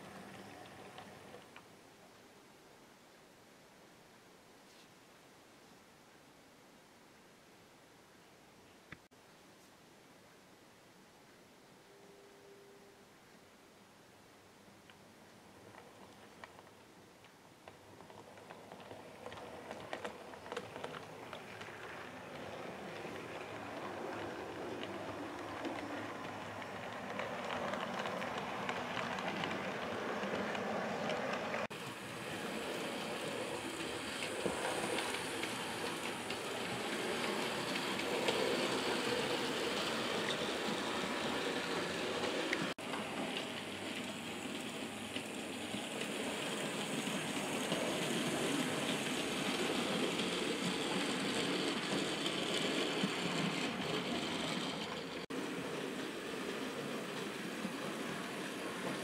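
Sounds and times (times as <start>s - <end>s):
model train wheels rattling: 17.6s - 59.0s.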